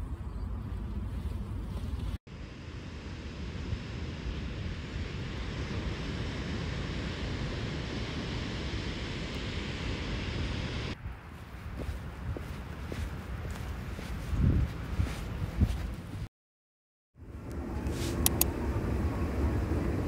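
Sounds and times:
wind buffeting microphone: 0:03.6 - 0:16.3.

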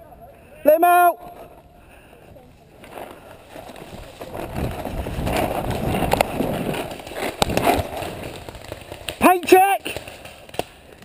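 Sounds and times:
branches rustling against person: 0:01.3 - 0:11.0
branches snapping: 0:02.8 - 0:11.0.

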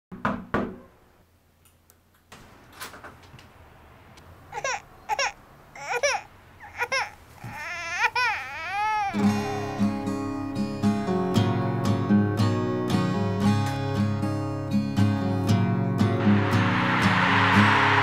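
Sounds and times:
knocks on a door: 0:00.1 - 0:00.8
infant crying: 0:04.5 - 0:10.5.

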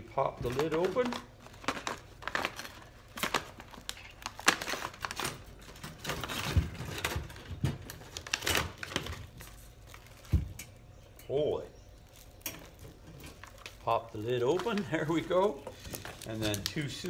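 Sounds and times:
paper label crinkling: 0:00.3 - 0:06.5, 0:11.9 - 0:17.0.

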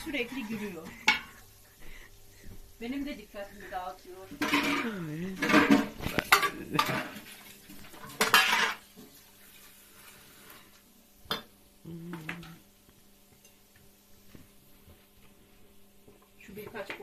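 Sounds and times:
dishes and cutlery clattering: 0:00.0 - 0:01.4, 0:04.3 - 0:09.0.

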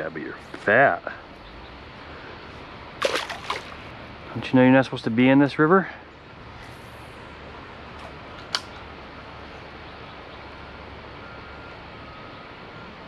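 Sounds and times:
flowing river water: 0:01.3 - 0:04.2.

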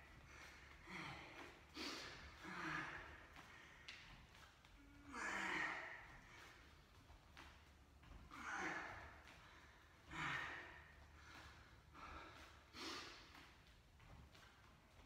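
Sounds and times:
man breathing hard: 0:00.0 - 0:06.7, 0:08.2 - 0:13.6.

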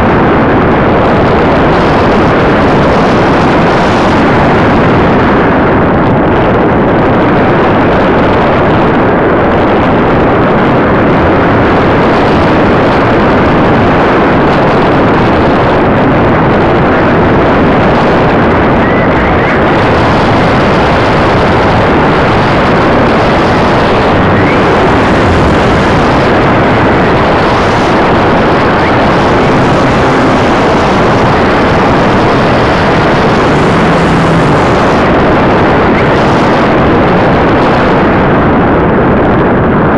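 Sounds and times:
airflow over microphone: 0:00.0 - 0:39.9.

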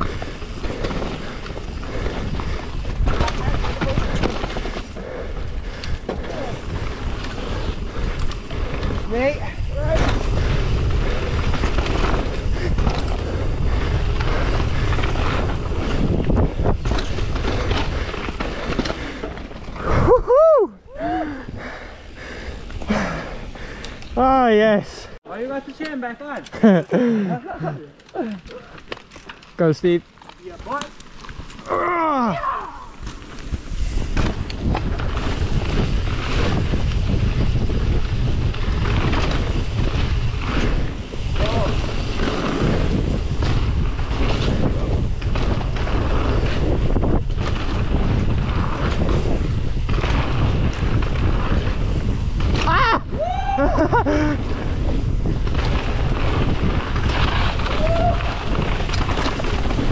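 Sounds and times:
bike clattering over bumps: 0:00.0 - 0:19.9, 0:32.9 - 0:59.9
tyres rolling over gravel: 0:00.0 - 0:20.0, 0:26.6 - 0:59.9
wind buffeting microphone: 0:00.0 - 0:25.2, 0:31.3 - 0:59.9.

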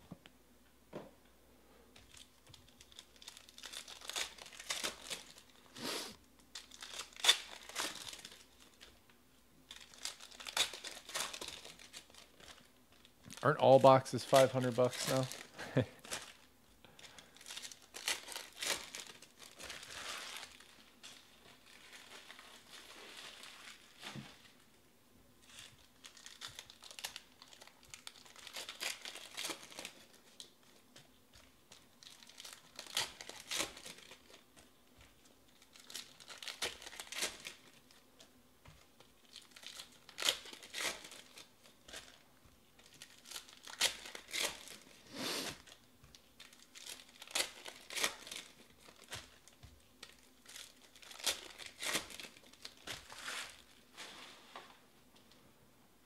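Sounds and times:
foil wrappers crinkling and tearing: 0:02.0 - 0:05.8, 0:06.4 - 0:09.1, 0:09.7 - 0:24.6, 0:25.4 - 0:54.1.

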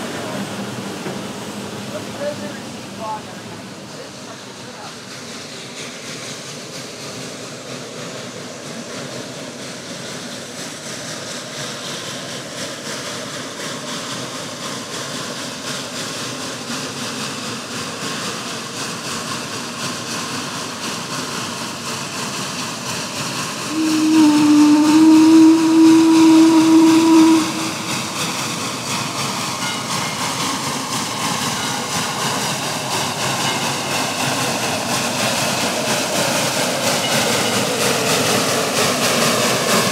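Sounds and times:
steam locomotive running: 0:00.0 - 0:39.9
steam whistle blast: 0:23.6 - 0:28.6.

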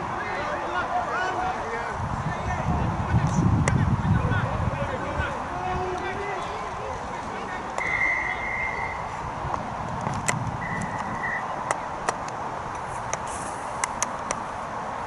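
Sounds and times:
background hiss: 0:04.6 - 0:15.0
referee's whistle blasts: 0:07.8 - 0:09.1, 0:10.6 - 0:11.4.

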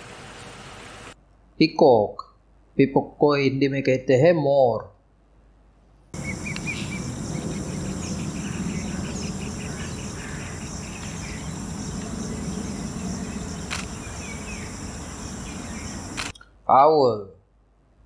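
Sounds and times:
insect trilling: 0:06.2 - 0:16.3
steady low noise: 0:06.2 - 0:16.3
faint bird chirps: 0:06.2 - 0:16.5
quick repeated chirps: 0:13.6 - 0:14.7, 0:15.8 - 0:16.4
sharp click: 0:13.7 - 0:14.0, 0:16.2 - 0:16.5.

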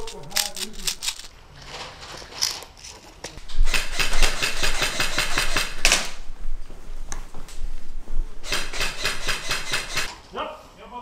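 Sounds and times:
airsoft gunfire bursts: 0:03.6 - 0:06.2, 0:08.4 - 0:10.1.

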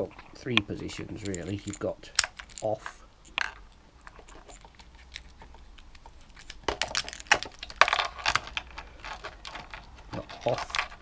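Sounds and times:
keys jangling: 0:04.0 - 0:05.4.

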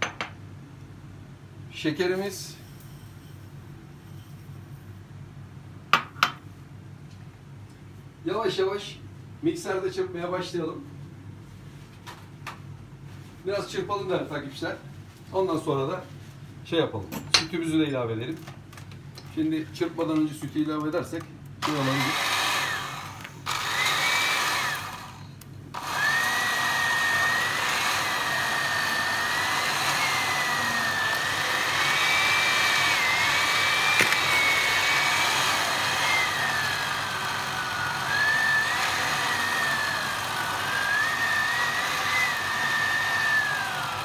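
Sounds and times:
electric hand mixer whining: 0:21.6 - 0:44.0.

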